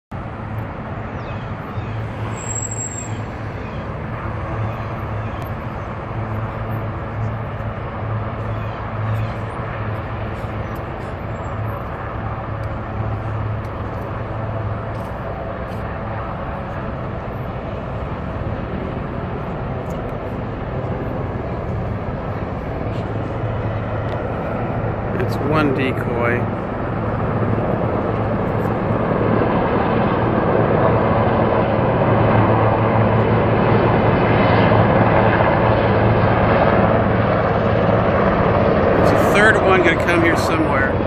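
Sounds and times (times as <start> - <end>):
rushing noise: 0.1 - 30.4
helicopters droning: 0.1 - 41.0.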